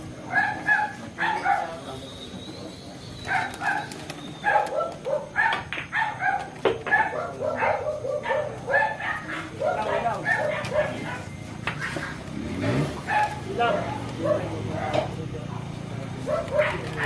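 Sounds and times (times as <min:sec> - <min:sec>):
dog barking and yipping: 0:00.2 - 0:01.8, 0:03.2 - 0:12.2, 0:13.0 - 0:14.9, 0:16.2 - 0:17.0.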